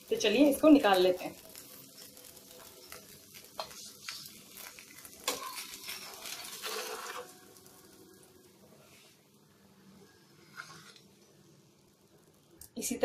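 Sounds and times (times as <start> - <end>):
ghee sizzling on a hot griddle: 0.0 - 13.0
metal spatula clicks and scrapes: 1.5 - 7.3.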